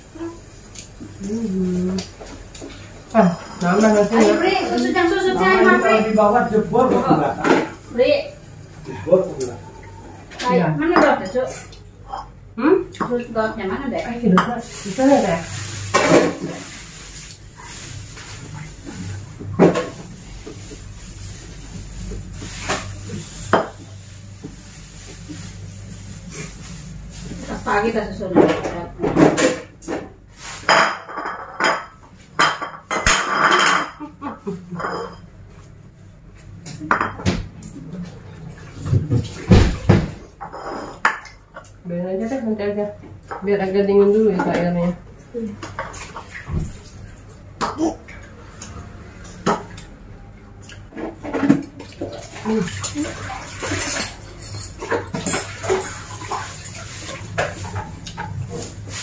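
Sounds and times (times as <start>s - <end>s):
dishes clattering on tiled floor: 2.0s - 7.9s, 10.3s - 13.4s, 14.3s - 16.8s, 17.7s - 20.8s, 22.1s - 24.6s, 27.1s - 35.6s, 36.4s - 41.8s, 44.2s - 46.8s, 47.6s - 50.0s, 50.7s - 59.0s
plates and bowls clinking: 30.6s - 35.3s, 36.8s - 37.4s.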